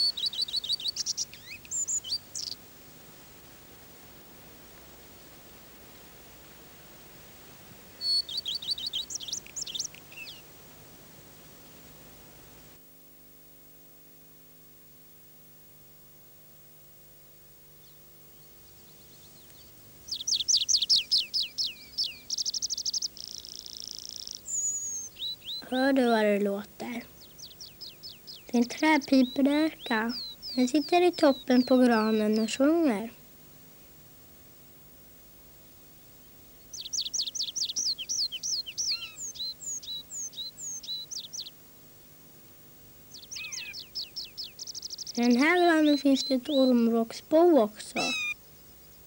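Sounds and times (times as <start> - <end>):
bird singing whistles and trills: 0.0 - 2.6, 8.0 - 10.4, 18.7 - 25.7, 27.2 - 32.6, 36.6 - 41.6, 43.1 - 46.8, 48.0 - 49.0.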